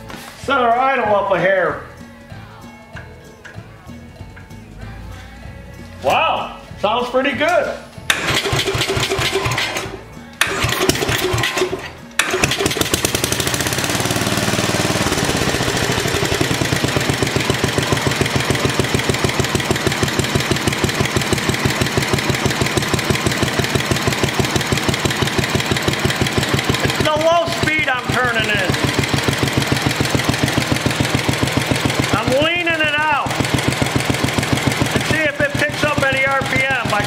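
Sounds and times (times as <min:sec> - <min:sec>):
single-cylinder engine running: 0:08.1 - 0:37.0.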